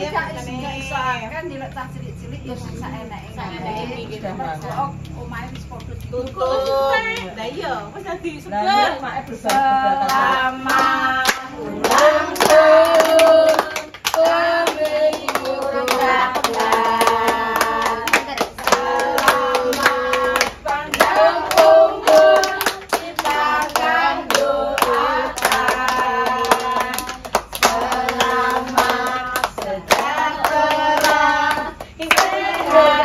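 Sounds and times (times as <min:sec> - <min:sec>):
women and children singing: 0:00.0 - 0:01.0, 0:02.8 - 0:07.5, 0:08.1 - 0:33.0
hands clapping: 0:04.6 - 0:07.3, 0:09.4 - 0:33.0.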